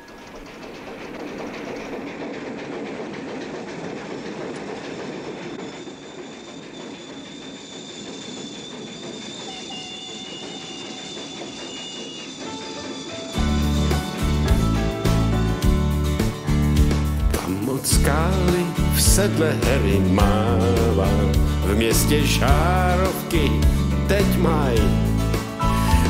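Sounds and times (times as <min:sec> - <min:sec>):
train rumbling on rails: 0:00.0 - 0:26.0
high thin wheel squeal: 0:04.9 - 0:14.7, 0:18.4 - 0:26.0.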